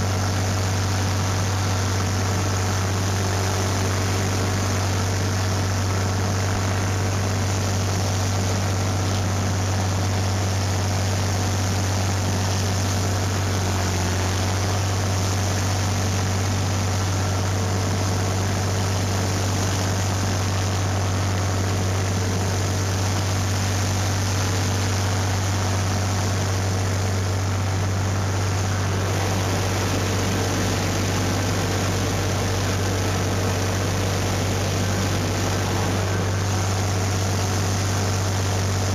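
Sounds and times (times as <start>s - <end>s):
tractor engine running: 0.0s - 38.9s
sprayer hissing: 26.2s - 38.9s.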